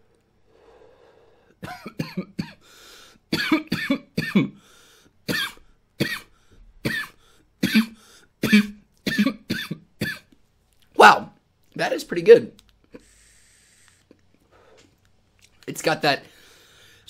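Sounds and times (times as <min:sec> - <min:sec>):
man coughing hard: 0:01.6 - 0:02.6, 0:03.3 - 0:04.6, 0:05.3 - 0:10.3.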